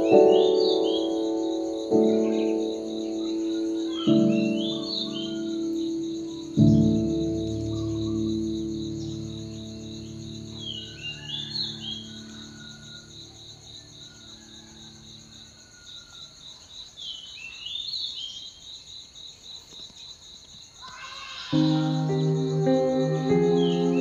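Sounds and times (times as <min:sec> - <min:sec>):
soft background music: 0:00.0 - 0:13.2, 0:21.6 - 0:24.0
insect chirping: 0:00.0 - 0:24.0.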